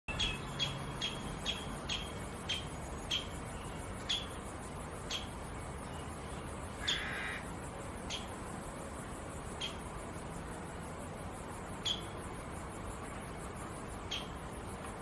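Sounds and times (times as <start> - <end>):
woodpecker call notes: 0.1 - 6.1, 6.8 - 8.4, 9.5 - 9.9, 11.8 - 12.2, 14.0 - 14.4.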